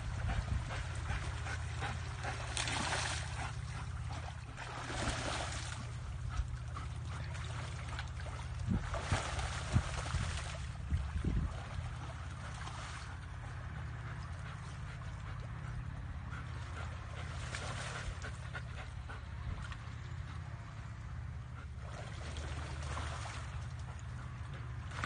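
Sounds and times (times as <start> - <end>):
low hum: 0.0 - 25.0
dog splashing in water: 0.8 - 13.4, 21.8 - 24.1.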